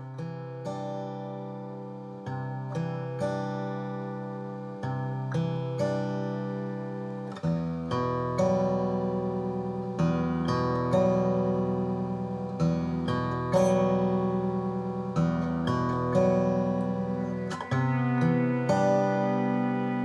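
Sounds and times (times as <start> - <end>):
plucked chords ringing: 13.6 - 20.0.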